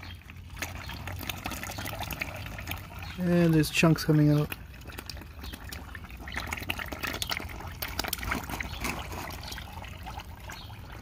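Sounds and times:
oil trickling into a pan: 0.0s - 11.0s
small splashes: 0.0s - 11.0s.

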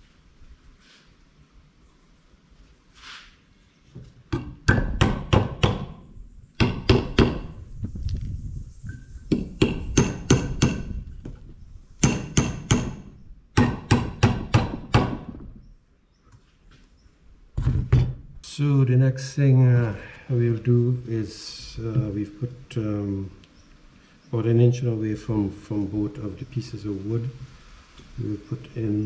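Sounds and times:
hammer driving nails into wood: 4.3s - 6.0s, 6.6s - 7.5s, 9.3s - 10.9s, 12.0s - 15.4s.

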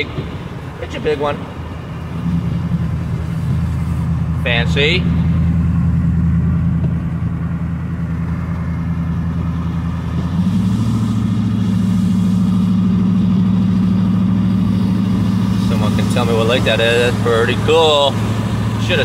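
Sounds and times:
truck engine droning: 0.0s - 19.0s.

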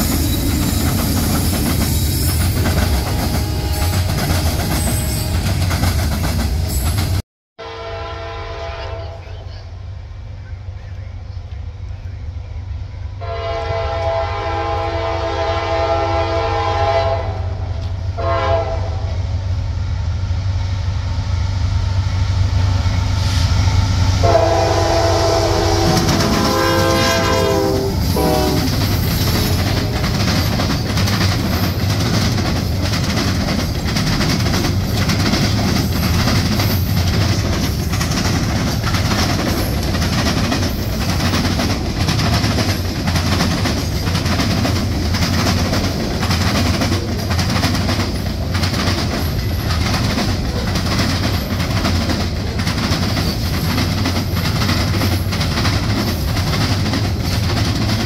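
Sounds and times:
wheels clacking over rail joints: 0.0s - 7.2s, 25.7s - 58.0s
freight train rumble: 0.0s - 58.0s
train horn blast: 2.5s - 5.8s, 7.6s - 9.4s, 13.2s - 19.4s, 24.2s - 30.2s.

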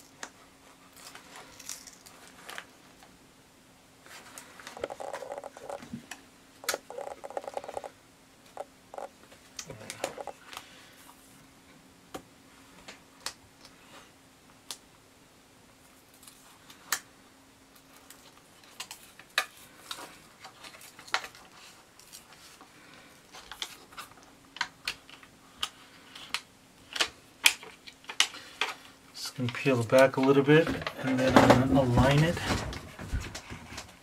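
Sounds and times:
plastic sheet clicking and crackling: 23.4s - 28.7s.

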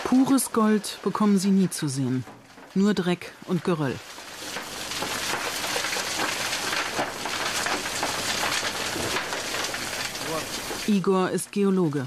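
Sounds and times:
stones and rubble pouring: 0.0s - 12.0s.

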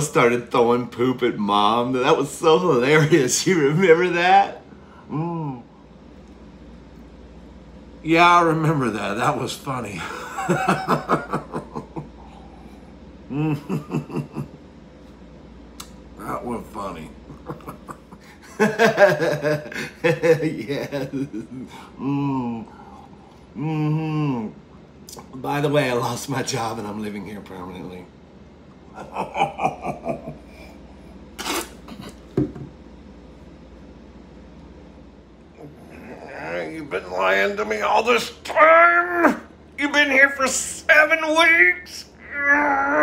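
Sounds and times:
man laughing: 10.0s - 12.7s, 13.3s - 14.6s, 17.3s - 22.6s, 28.9s - 30.9s
knock: 32.4s - 32.7s
man's voice in pitched bursts: 36.4s - 42.2s.

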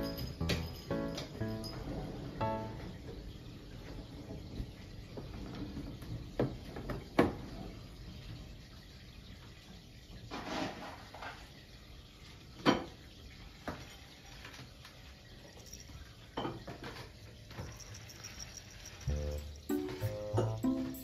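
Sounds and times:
light knocks and clinks: 0.0s - 2.0s, 15.4s - 20.1s
music: 0.0s - 3.2s, 18.9s - 21.0s.

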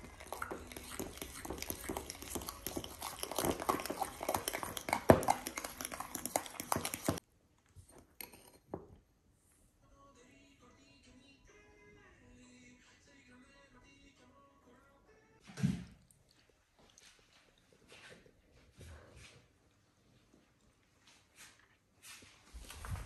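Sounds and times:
fork scraping glass bowl: 0.0s - 7.2s.

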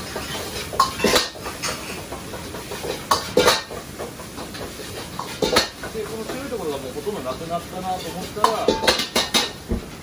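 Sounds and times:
metal ladle clanking on a wok: 0.1s - 6.4s, 8.0s - 9.6s.

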